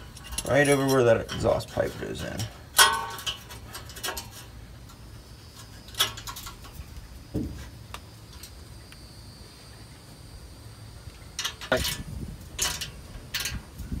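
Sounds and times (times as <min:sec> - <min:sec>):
dull knock: 0:07.3 - 0:07.6.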